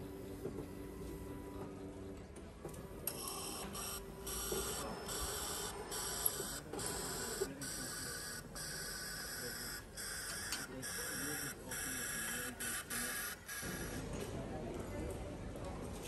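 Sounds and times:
coffee machine frothing milk: 3.1s - 14.0s.

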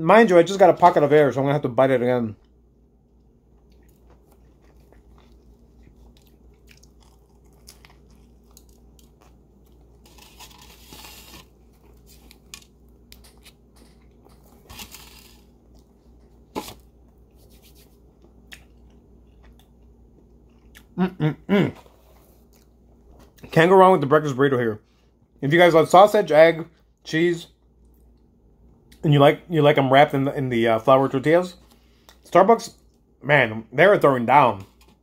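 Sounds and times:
person chewing food: 2.4s - 21.0s
person humming mm: 21.0s - 21.9s.

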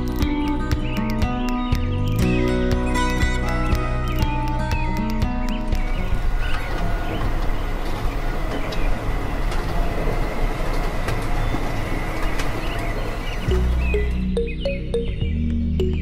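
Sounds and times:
rumbling vehicle noise: 0.0s - 16.0s.

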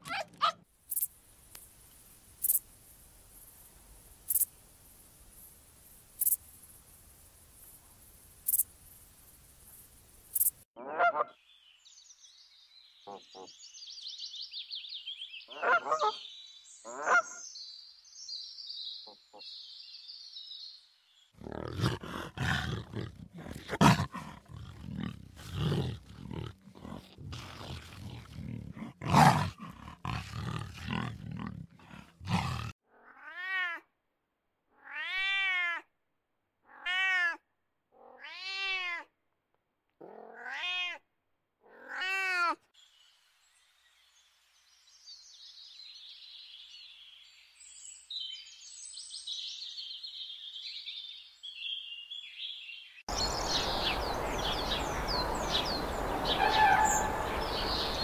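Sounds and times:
loud rough animal call: 21.4s - 33.2s, 53.1s - 58.0s
cat meowing: 32.9s - 33.8s, 34.8s - 35.9s, 36.7s - 37.4s, 38.0s - 39.1s, 40.0s - 41.0s, 41.7s - 42.6s
short animal calls: 54.4s - 58.0s.

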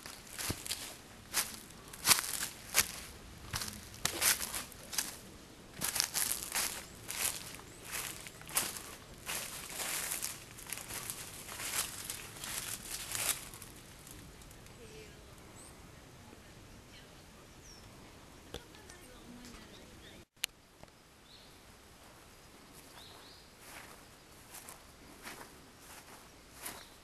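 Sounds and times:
footsteps crunching dry leaves: 0.0s - 14.6s, 22.8s - 27.0s
faint bird chirps: 22.4s - 24.8s.

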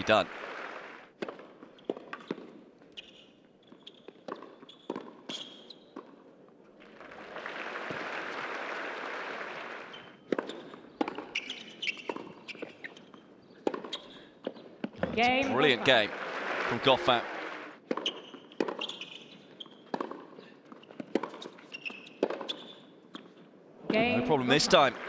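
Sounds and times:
racquets striking tennis ball: 0.5s - 3.2s, 4.0s - 6.2s, 10.1s - 15.1s, 17.8s - 23.3s
crowd applause: 7.1s - 10.0s, 15.4s - 17.8s.

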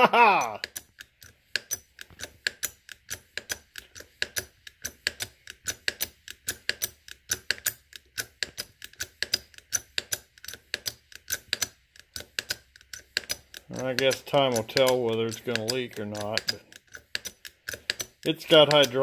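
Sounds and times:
hydraulic jack pump clicking: 0.6s - 19.0s.

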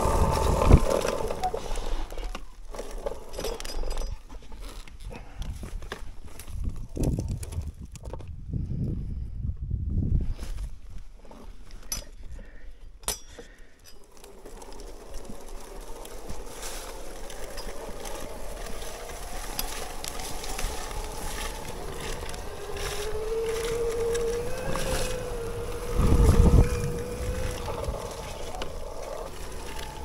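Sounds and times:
low trail rumble: 0.0s - 2.3s, 14.1s - 30.0s
electric bike motor whining: 0.0s - 3.0s, 14.0s - 30.0s.

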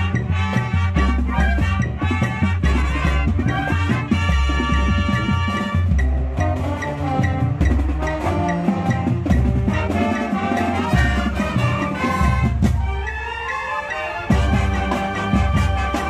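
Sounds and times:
brass: 0.0s - 16.0s
drums: 0.0s - 16.0s
flutes: 0.0s - 16.0s
saxophones: 0.0s - 16.0s.

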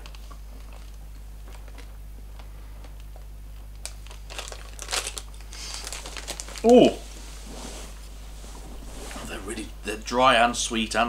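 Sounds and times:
snack packaging crinkling: 0.0s - 7.0s
low room hum: 0.0s - 11.0s.

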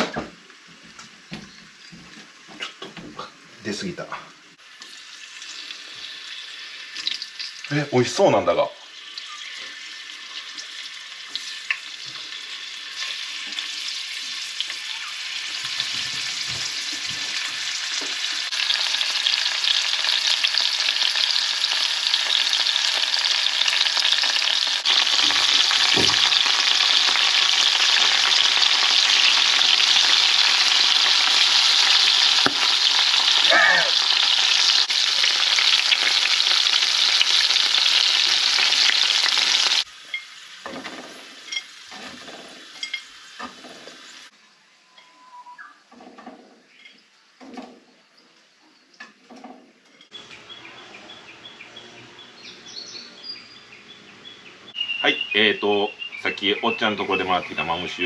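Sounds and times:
frying sizzle in a pan: 4.6s - 44.4s.

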